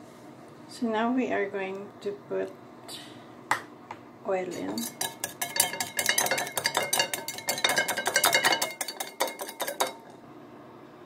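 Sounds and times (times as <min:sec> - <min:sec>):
whisk clicking against bowl: 0:04.6 - 0:10.1.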